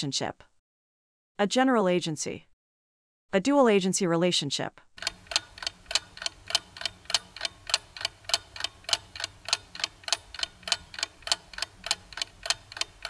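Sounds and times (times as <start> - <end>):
clock ticking: 5.0 - 13.0.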